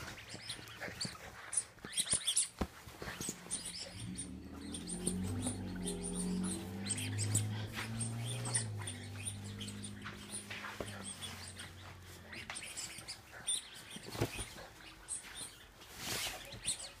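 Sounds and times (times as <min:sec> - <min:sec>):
fabric rustling and scratching: 0:00.0 - 0:17.0
low growl-like drone: 0:03.4 - 0:12.7.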